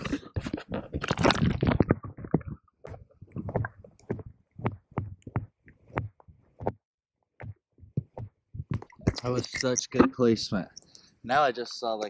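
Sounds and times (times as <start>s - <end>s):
underwater bubbling water: 1.1s - 6.2s
dull underwater knocks: 7.4s - 9.2s.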